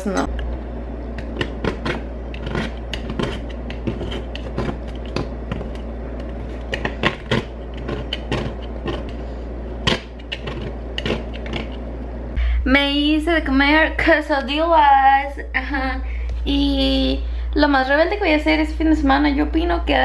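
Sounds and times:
steady low hum: 0.0s - 20.0s
scraping and clicking of dried paint: 1.3s - 9.2s, 9.8s - 11.8s.

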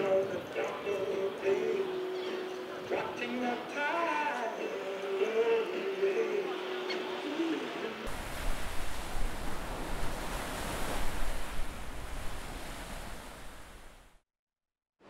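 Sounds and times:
wind and sea noise: 3.8s - 14.2s
wind rumbling on microphone: 8.1s - 14.2s.

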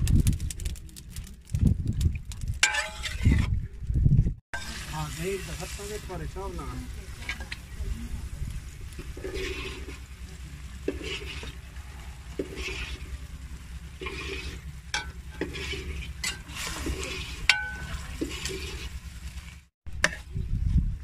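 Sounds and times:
low rumble: 0.0s - 21.0s
metal spatula scraping pan: 2.6s - 3.5s, 9.0s - 19.0s.

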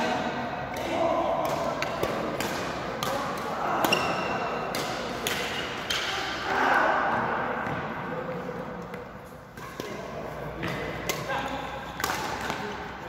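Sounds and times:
rackets hitting shuttlecock: 0.1s - 6.4s, 8.8s - 12.9s.

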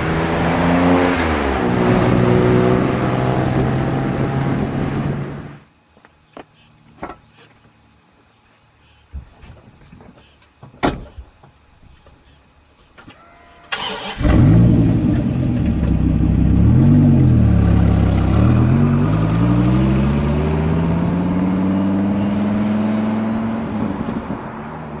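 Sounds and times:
car accelerating away: 0.0s - 5.6s, 13.7s - 25.0s
car engine revving: 0.0s - 5.6s, 13.8s - 24.7s
car engine cranking and catching: 13.7s - 18.8s.

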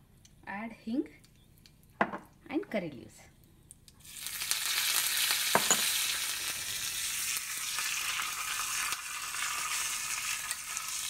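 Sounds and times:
leaves sizzling in hot oil: 4.0s - 11.0s.

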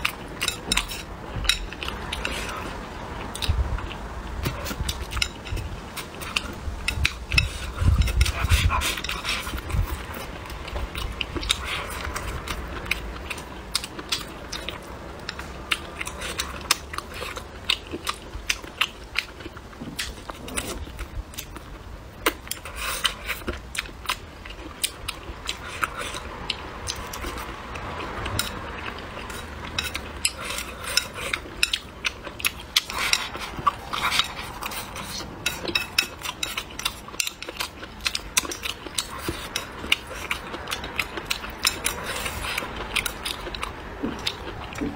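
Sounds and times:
crunchy chewing: 0.0s - 44.9s.

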